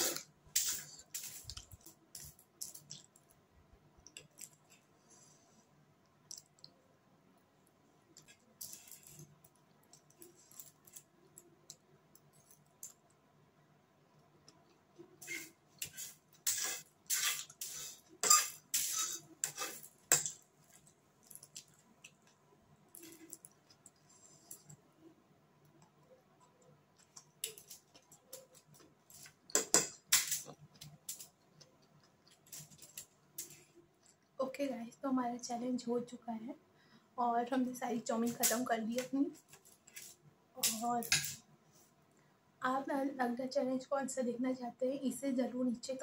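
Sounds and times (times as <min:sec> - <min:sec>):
fork scraping on foil plate: 0:15.2 - 0:20.3.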